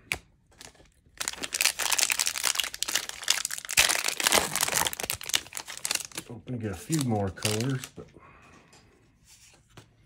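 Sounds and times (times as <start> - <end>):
plastic wrapper crinkling: 0.1 - 8.0.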